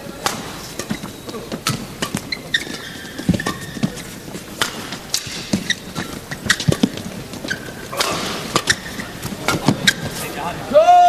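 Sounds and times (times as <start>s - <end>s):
crowd noise: 0.0s - 11.0s
shoe squeaks on court: 0.4s - 4.3s, 5.2s - 10.4s
rackets striking shuttlecock: 4.6s - 7.1s, 7.7s - 10.2s.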